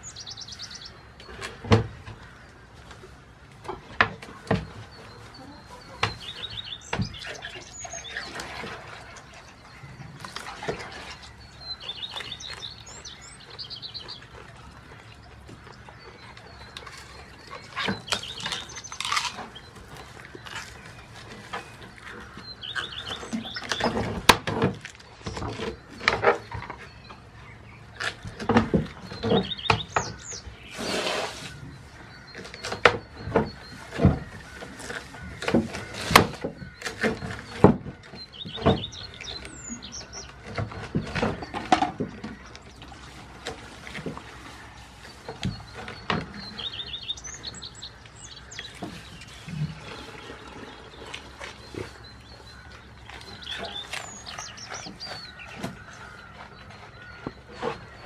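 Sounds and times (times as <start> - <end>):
goat chewing leaves: 0.0 - 58.0
small bird chirping: 11.6 - 14.3.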